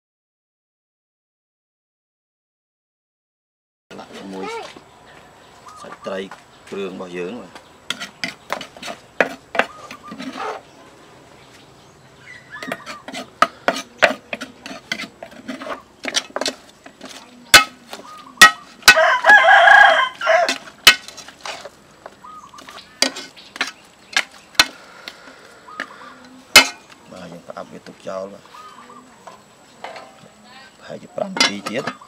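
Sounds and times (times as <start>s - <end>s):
rooster crowing: 18.8s - 20.7s
metal ladle clinking against pot: 26.5s - 26.8s, 31.3s - 32.0s.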